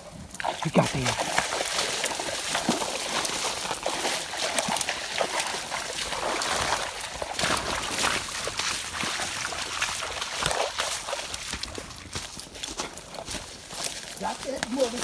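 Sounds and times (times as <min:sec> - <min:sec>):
footsteps through dry leaves: 0:02.4 - 0:15.0.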